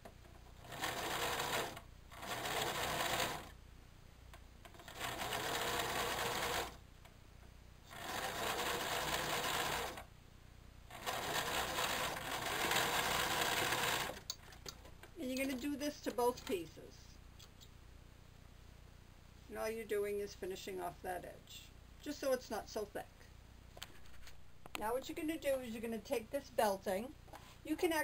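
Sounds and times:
sewing machine stitching: 0.6s - 3.5s, 4.7s - 6.8s, 7.9s - 10.1s, 10.9s - 14.4s.

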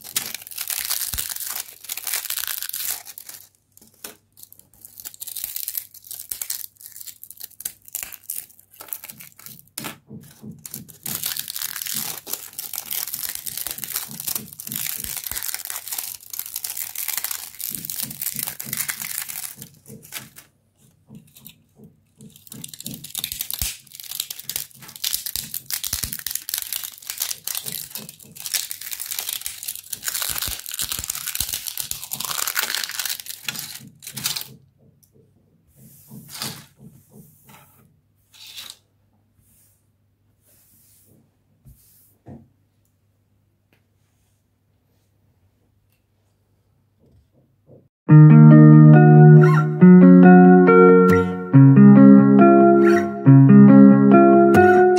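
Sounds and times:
plastic crackling and crunching: 0.0s - 34.6s.

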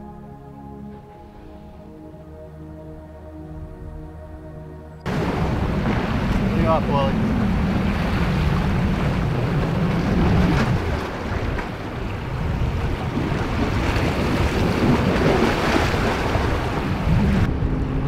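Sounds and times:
wind buffeting microphone: 5.0s - 18.0s
small waves washing: 5.1s - 17.5s.

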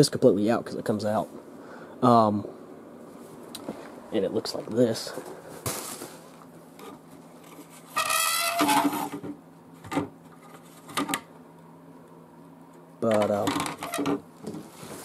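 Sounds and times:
plastic squeaky rub: 7.6s - 9.2s, 13.4s - 14.2s.

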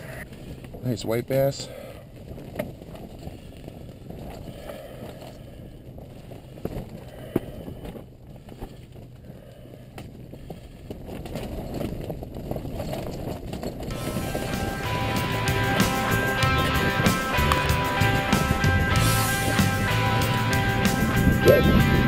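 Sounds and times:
steady low rumble: 13.9s - 22.0s.

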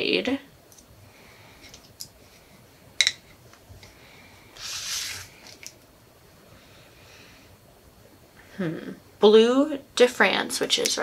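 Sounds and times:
short hiss: 4.6s - 5.5s.

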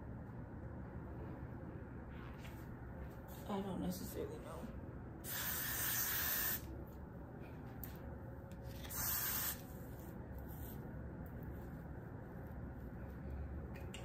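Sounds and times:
aerosol hairspray hissing: 5.2s - 6.6s, 8.8s - 9.6s.

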